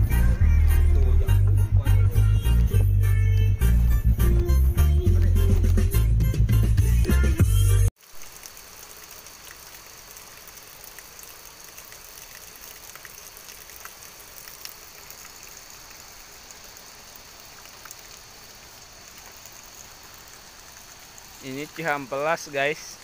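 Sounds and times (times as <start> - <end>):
water stream splashing on ground: 7.9 - 23.0.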